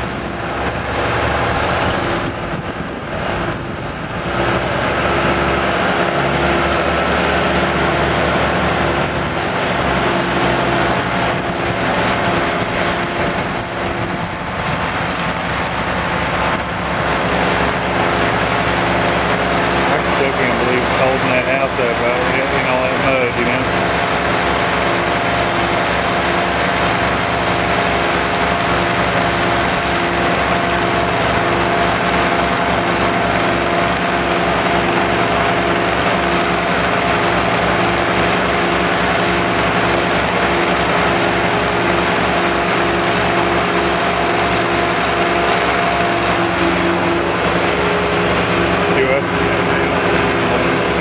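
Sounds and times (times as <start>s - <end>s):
tracked crawler engine whining: 0.0s - 51.0s.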